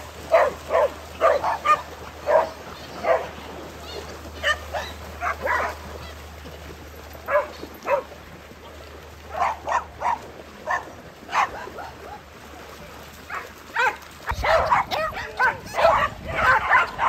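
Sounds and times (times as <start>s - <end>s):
dogs barking: 0.2s - 3.4s, 4.3s - 6.1s, 7.2s - 8.1s, 9.3s - 12.2s, 13.3s - 17.0s.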